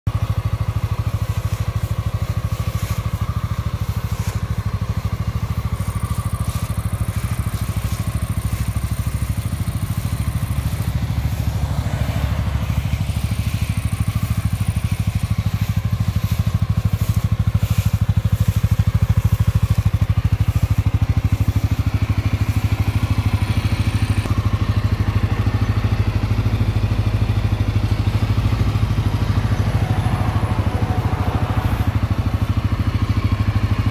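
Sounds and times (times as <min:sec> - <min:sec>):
atv engine idling: 0:00.1 - 0:33.9.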